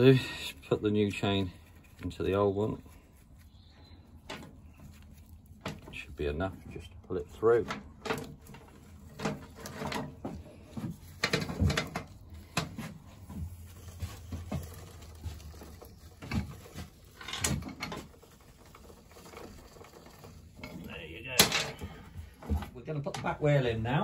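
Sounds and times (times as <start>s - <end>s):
drive chain clinking and rattling: 17.0s - 22.0s.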